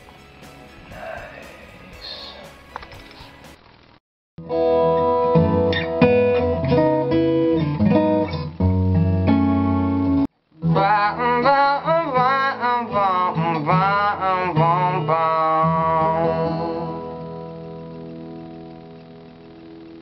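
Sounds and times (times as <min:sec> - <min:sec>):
person singing with vibrato: 0:00.9 - 0:02.5, 0:10.5 - 0:17.6
acoustic guitar picking: 0:04.4 - 0:19.1.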